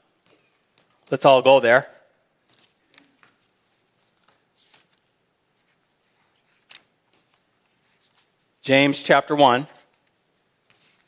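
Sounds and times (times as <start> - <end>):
pages turning: 2.4 - 8.5, 9.8 - 11.0.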